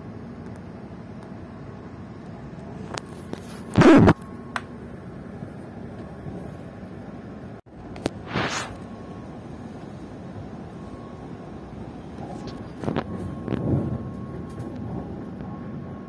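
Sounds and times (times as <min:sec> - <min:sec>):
train rumbling inside carriage: 0:00.0 - 0:16.0
loud burst of noise: 0:08.1 - 0:09.0.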